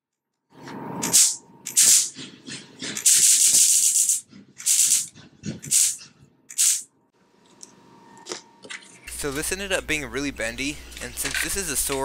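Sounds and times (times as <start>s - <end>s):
high-voltage sparks crackling: 6.6s - 6.8s.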